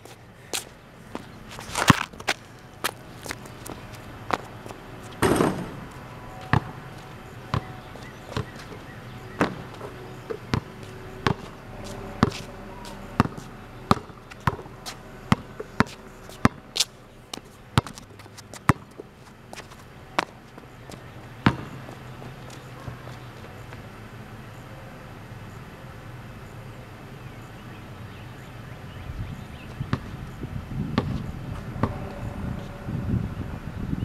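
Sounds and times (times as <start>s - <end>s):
basketball hoop rattling crash: 5.2s - 5.8s
basketball bouncing on concrete: 5.2s - 23.9s, 29.8s - 30.2s, 30.9s - 32.2s.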